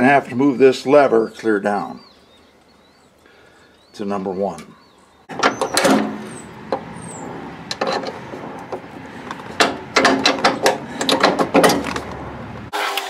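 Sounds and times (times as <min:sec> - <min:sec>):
metal clicks and clanks: 0:05.3 - 0:06.9, 0:07.6 - 0:12.2.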